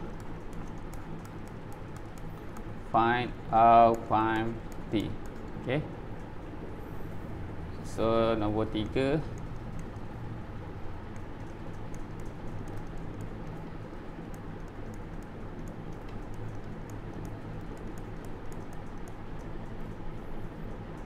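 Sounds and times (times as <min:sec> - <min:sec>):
stylus tapping on pen tablet: 0:00.0 - 0:02.8, 0:03.9 - 0:05.6, 0:08.7 - 0:10.2, 0:11.0 - 0:19.8
steady low hum: 0:00.0 - 0:21.0.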